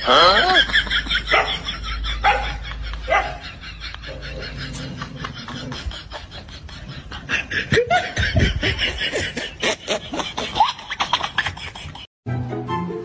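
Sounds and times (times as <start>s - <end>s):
person laughing: 0.0s - 12.1s.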